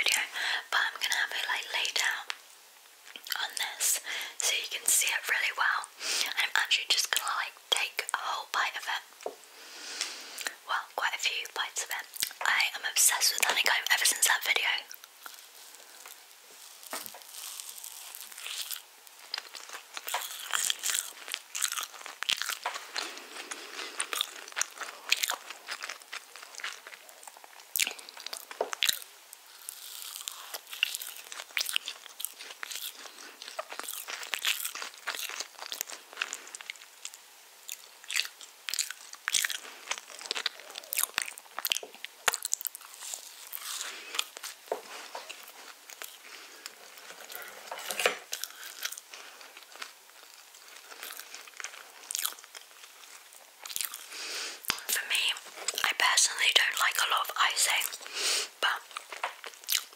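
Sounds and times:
chewing mouth clicks and smacks: 0:18.4 - 0:29.0, 0:30.2 - 0:44.6, 0:50.8 - 0:55.0, 0:58.9 - 0:59.9.

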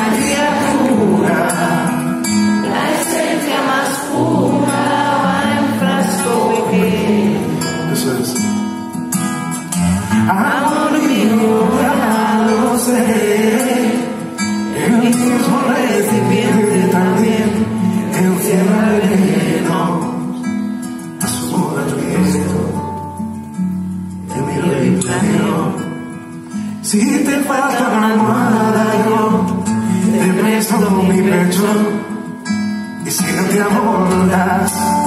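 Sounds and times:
audience singing along: 0:00.0 - 0:08.2, 0:10.2 - 0:20.5, 0:27.0 - 0:32.1
man singing live: 0:00.0 - 0:08.8, 0:09.8 - 0:23.3, 0:24.1 - 0:35.0.

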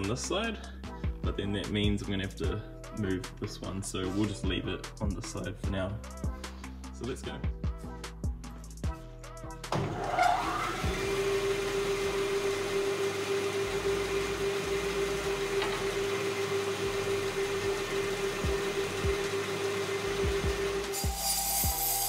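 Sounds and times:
bandsaw motor hum and blade whir: 0:09.7 - 0:22.0.

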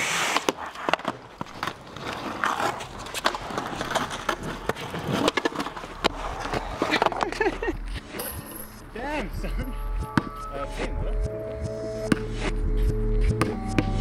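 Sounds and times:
skateboard wheels rolling on concrete: 0:00.0 - 0:09.9
skateboard clacks on ground: 0:00.3 - 0:07.7.

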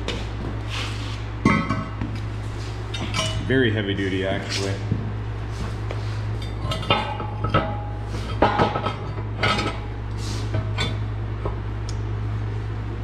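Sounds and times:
steel parts clanking: 0:02.9 - 0:03.5, 0:06.4 - 0:09.9.

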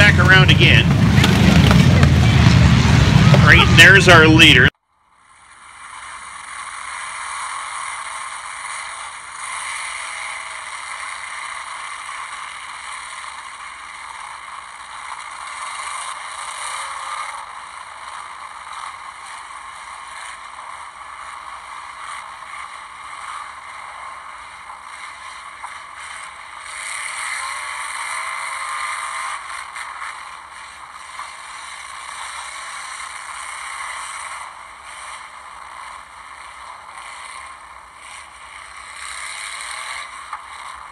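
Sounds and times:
cars passing by: 0:00.0 - 0:04.7
race car engines: 0:00.0 - 0:04.7, 0:19.0 - 0:40.9.

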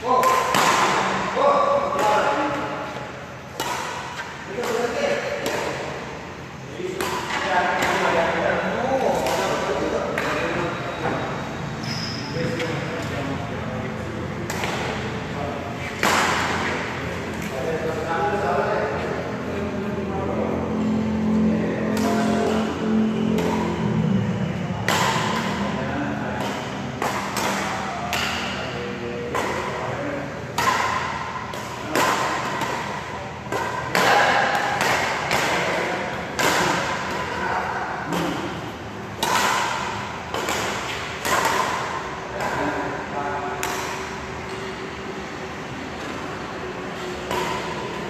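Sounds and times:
rackets smacking shuttlecock: 0:00.1 - 0:10.7, 0:14.2 - 0:15.1, 0:15.7 - 0:18.0, 0:21.8 - 0:24.0, 0:24.6 - 0:44.8, 0:45.9 - 0:48.0.

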